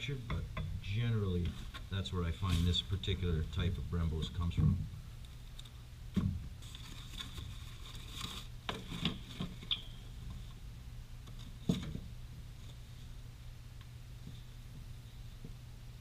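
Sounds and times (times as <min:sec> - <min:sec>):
packaging rustling and scraping: 0:06.6 - 0:09.7.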